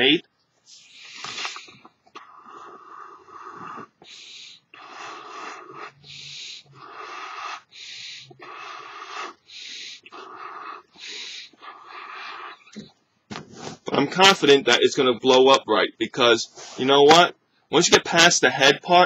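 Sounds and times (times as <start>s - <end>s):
sharp breaths drawn in: 0.6s - 12.8s, 16.5s - 16.8s
puffs blown into balloon: 0.7s - 12.6s, 13.4s - 13.9s.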